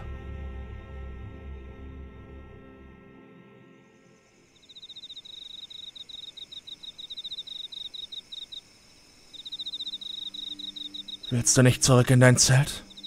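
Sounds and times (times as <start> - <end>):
background music: 0.0 - 4.6, 9.4 - 13.0
cricket chirping: 3.7 - 13.0.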